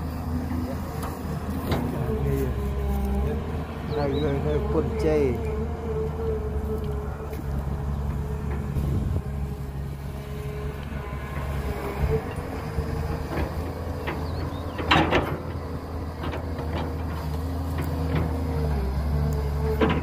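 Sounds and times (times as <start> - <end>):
diesel engine hum with whine: 0.0 - 20.0
metal knocks and clanks: 13.0 - 15.6.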